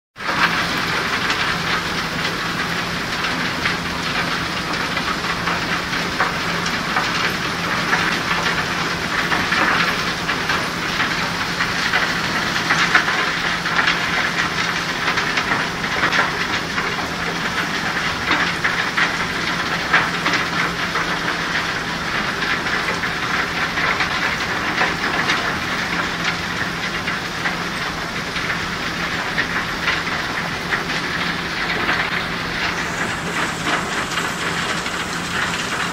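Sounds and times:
flowing slurry water: 0.2 - 35.9
machinery rattle: 29.2 - 35.9
motor hum: 31.3 - 35.9.

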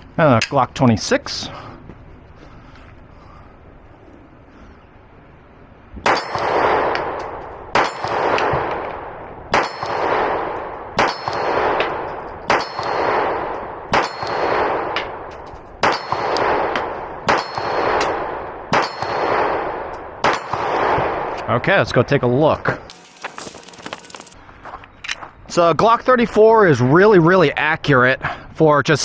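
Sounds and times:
pistol shots echoing: 6.0 - 21.4.

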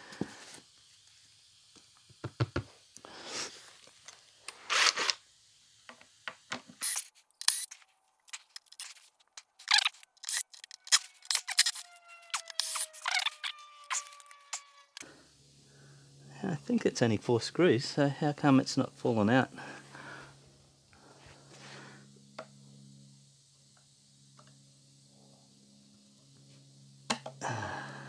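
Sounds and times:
thin squeaky tone: 9.6 - 15.0.

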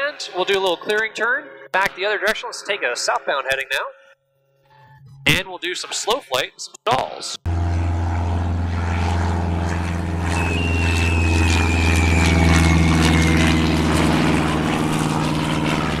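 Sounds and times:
propeller airplane engine drone: 7.4 - 16.0
thin whistle falling in pitch: 10.2 - 13.6.

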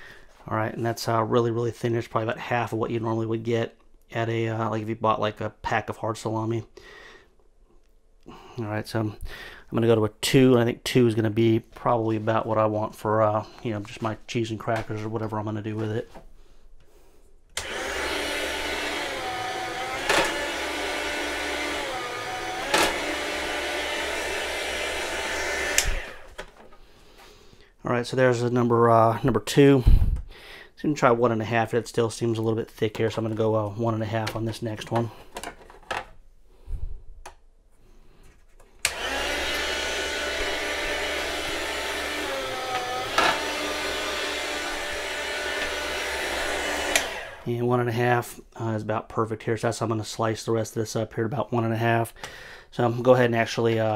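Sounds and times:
electric meat slicer whining: 17.6 - 26.4, 38.8 - 47.4.

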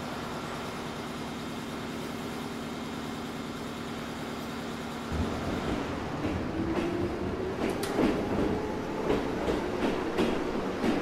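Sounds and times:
train standing hum: 0.0 - 11.0
train rising whine: 4.9 - 11.0
wheels clacking over rail joints: 5.1 - 11.0.

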